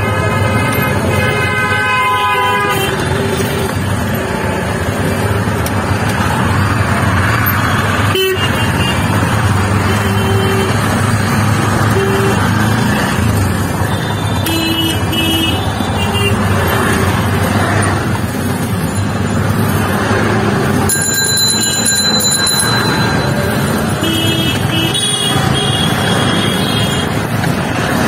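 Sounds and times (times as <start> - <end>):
vehicle horn: 0.0 - 3.2, 23.9 - 27.1
road traffic noise: 0.0 - 28.0.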